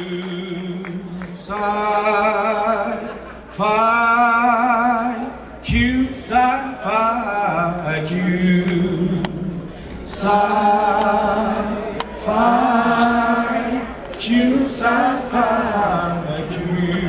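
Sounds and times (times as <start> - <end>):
man singing unaccompanied: 3.6 - 17.0.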